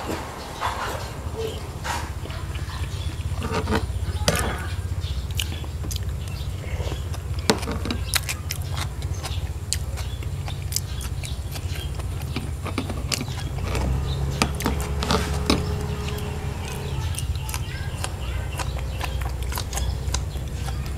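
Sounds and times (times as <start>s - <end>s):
steady low hum: 0.0s - 20.9s
person chewing food: 0.2s - 20.9s.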